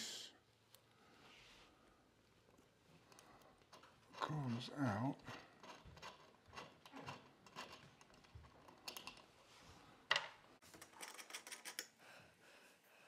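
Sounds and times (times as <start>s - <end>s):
metal chain clicking and rattling: 5.2s - 9.3s.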